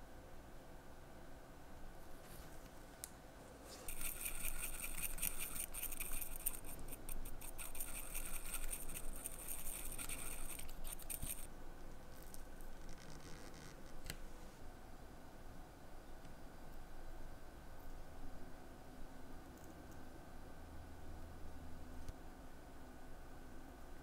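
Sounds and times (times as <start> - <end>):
needle scraping in ceramic dish: 3.8 - 11.5.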